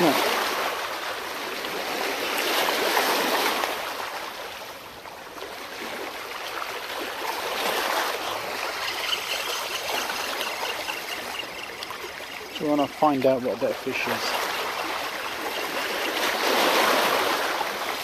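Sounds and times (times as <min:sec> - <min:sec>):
waves washing against rocks: 0:00.0 - 0:04.5, 0:06.6 - 0:18.0.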